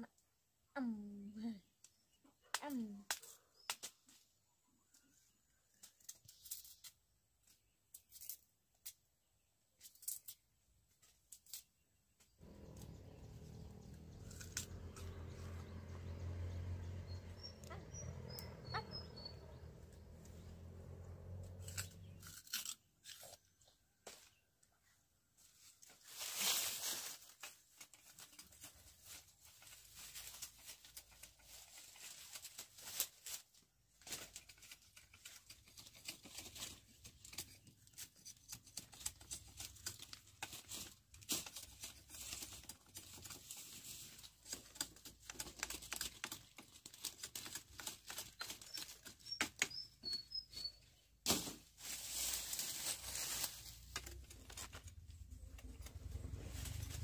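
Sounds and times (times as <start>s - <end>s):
dry plants rustling: 12.4s - 23.2s, 25.4s - 50.6s, 51.2s - 57.0s
faint bird chirps: 16.9s - 20.5s, 48.3s - 51.1s.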